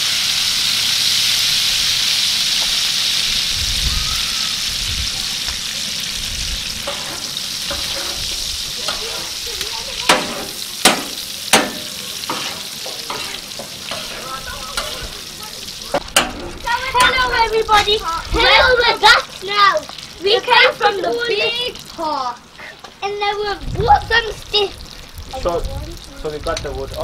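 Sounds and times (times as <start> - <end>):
chicken sizzling in hot oil: 0.0 - 27.0
metal spatula scraping pan: 6.8 - 9.4, 10.1 - 15.0.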